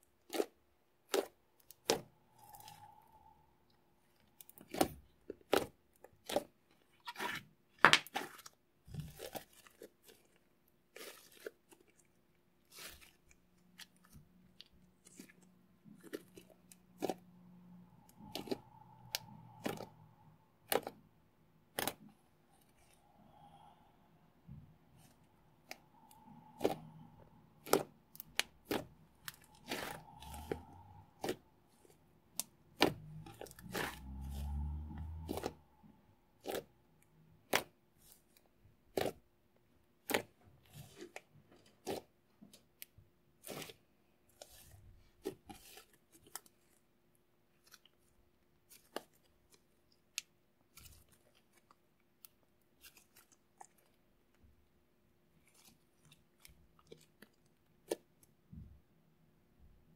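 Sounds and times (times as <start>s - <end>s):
sticky slime popping and crackling: 0.2s - 2.8s, 4.4s - 12.1s, 18.1s - 21.1s, 21.7s - 23.4s, 24.9s - 35.6s, 36.4s - 39.3s.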